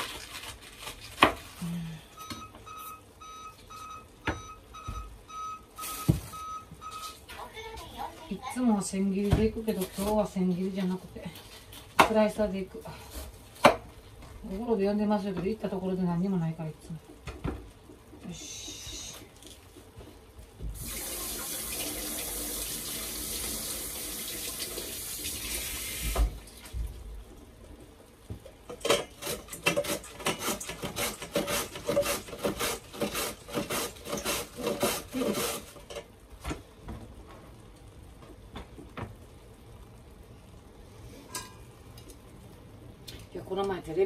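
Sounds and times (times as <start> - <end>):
kitchen tap running: 20.6 - 26.9
cabbage sliced on vegetable slicer: 29.2 - 35.8.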